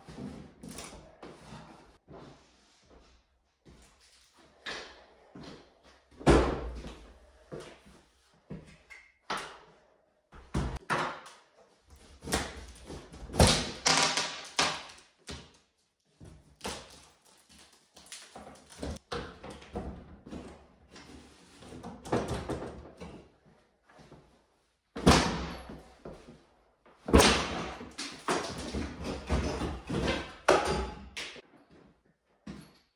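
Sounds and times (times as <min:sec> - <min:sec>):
wooden boards knocking and cracking: 0:13.3 - 0:14.9.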